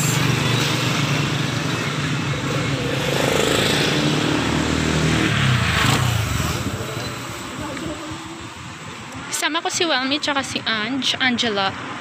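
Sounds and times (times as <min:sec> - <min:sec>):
vehicle engine passing by: 0:00.0 - 0:08.3.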